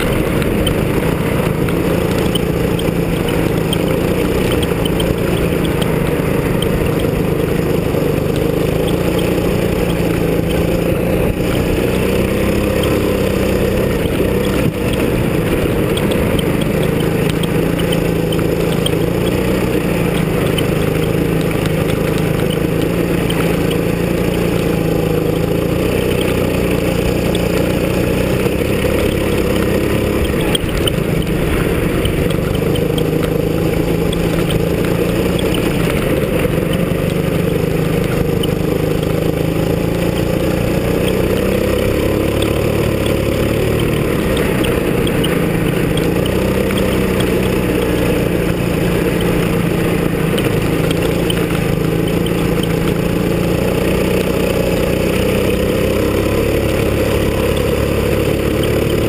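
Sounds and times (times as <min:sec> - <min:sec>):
go-kart engine running hard: 0:00.0 - 0:59.0.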